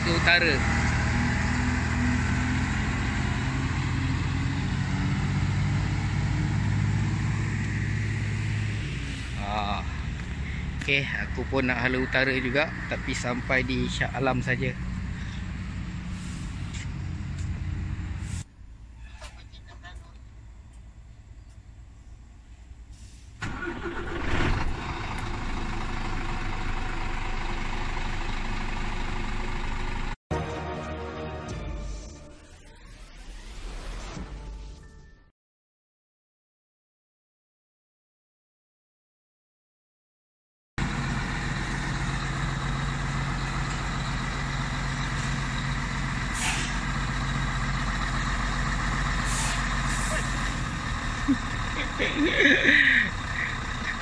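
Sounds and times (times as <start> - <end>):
diesel truck engine starting and idling: 0.0 - 18.3, 23.0 - 30.2, 40.8 - 54.0.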